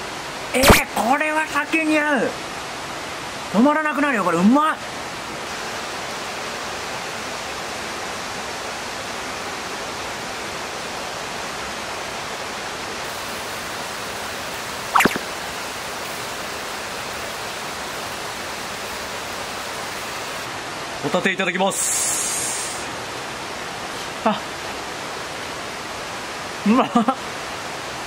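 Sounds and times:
sharp pop: 0:00.6 - 0:00.9, 0:15.0 - 0:15.3
food sizzling on a grill: 0:21.7 - 0:22.8.

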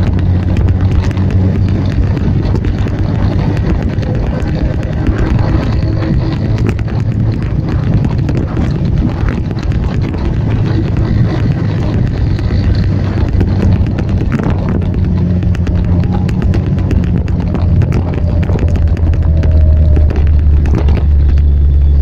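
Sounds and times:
scooter engines running: 0:00.0 - 0:22.0
wind buffeting microphone: 0:00.0 - 0:22.0.

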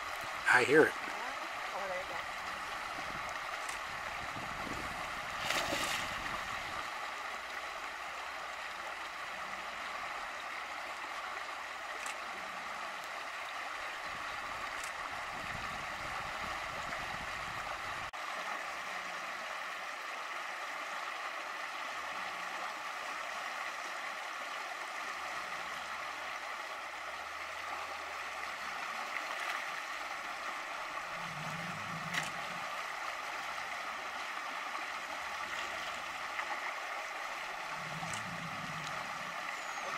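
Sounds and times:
splash in shallow water: 0:01.1 - 0:07.0.

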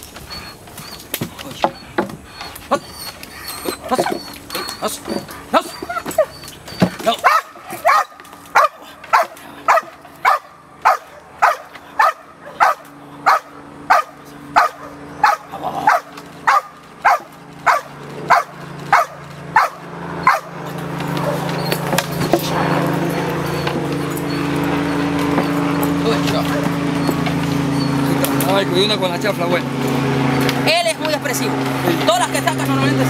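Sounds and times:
low hum: 0:00.0 - 0:33.0
dog barking rhythmically: 0:03.6 - 0:06.4, 0:07.2 - 0:21.6.

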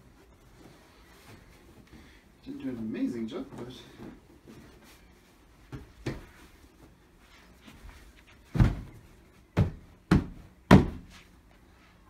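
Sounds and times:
couch sections thudding: 0:05.6 - 0:11.3.

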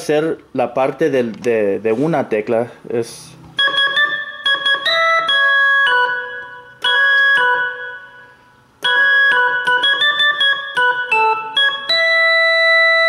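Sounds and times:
keyboard melody: 0:03.5 - 0:13.0.

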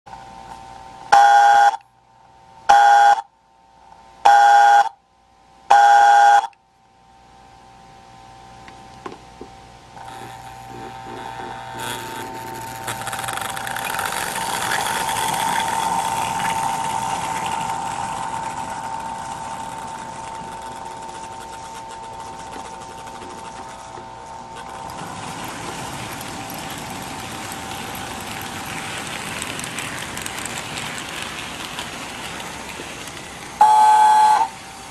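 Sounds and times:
toy train whistle blasts: 0:01.1 - 0:01.8, 0:02.7 - 0:03.2, 0:04.3 - 0:05.0, 0:05.7 - 0:06.6, 0:33.6 - 0:34.6
toy train motor and wheels: 0:10.0 - 0:34.9
freight cars rattling: 0:13.0 - 0:21.7, 0:24.6 - 0:33.7.

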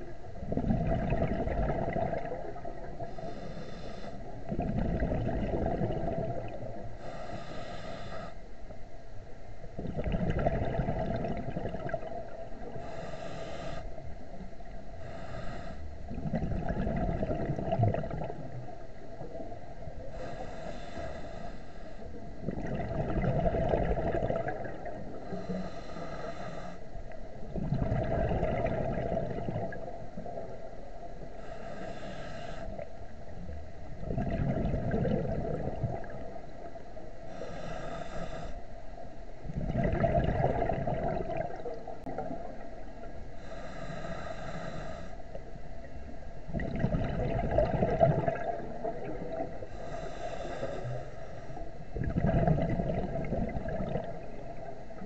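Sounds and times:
exhaled bubbles bubbling: 0:00.0 - 0:07.5, 0:09.7 - 0:13.8, 0:14.6 - 0:20.7, 0:22.1 - 0:26.2, 0:27.3 - 0:30.8, 0:32.8 - 0:36.8, 0:39.4 - 0:44.4, 0:45.8 - 0:51.0, 0:51.9 - 0:55.0
regulator inhale hiss: 0:02.9 - 0:04.5, 0:06.8 - 0:08.7, 0:12.6 - 0:16.2, 0:19.9 - 0:22.4, 0:24.9 - 0:27.1, 0:31.0 - 0:33.1, 0:36.1 - 0:39.1, 0:43.2 - 0:45.6, 0:49.4 - 0:51.9.

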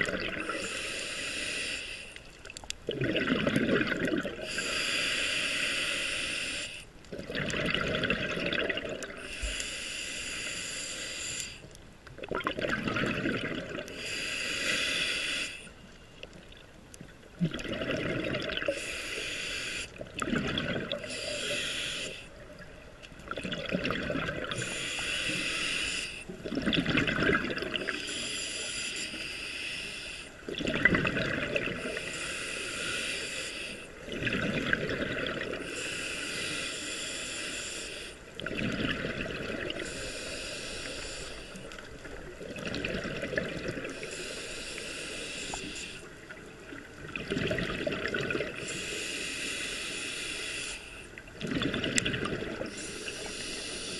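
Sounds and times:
bubbling exhale underwater: 0:00.0 - 0:00.7, 0:02.9 - 0:04.6, 0:07.1 - 0:09.3, 0:12.2 - 0:14.0, 0:17.3 - 0:18.8, 0:20.0 - 0:21.3, 0:23.2 - 0:24.8, 0:26.4 - 0:28.1, 0:30.5 - 0:32.0, 0:34.1 - 0:35.7, 0:38.4 - 0:39.9, 0:42.0 - 0:44.0, 0:46.2 - 0:48.7, 0:51.3 - 0:52.8
regulator hissing inhale: 0:00.4 - 0:02.3, 0:04.4 - 0:06.9, 0:09.2 - 0:11.8, 0:13.9 - 0:16.3, 0:18.7 - 0:20.1, 0:21.0 - 0:22.4, 0:24.5 - 0:26.3, 0:27.9 - 0:30.5, 0:31.8 - 0:34.1, 0:35.6 - 0:38.4, 0:39.7 - 0:42.2, 0:43.9 - 0:46.4, 0:48.6 - 0:51.2, 0:52.6 - 0:53.9.

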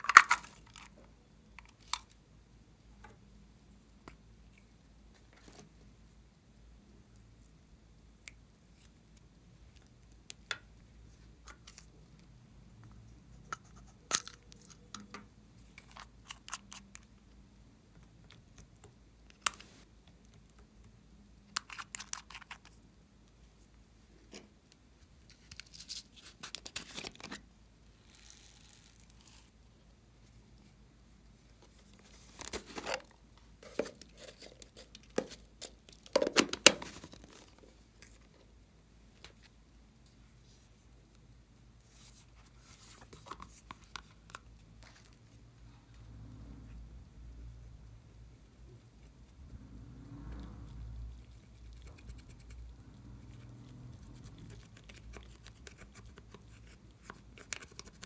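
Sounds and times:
plastic toys clicking and knocking: 0:00.0 - 0:01.0.

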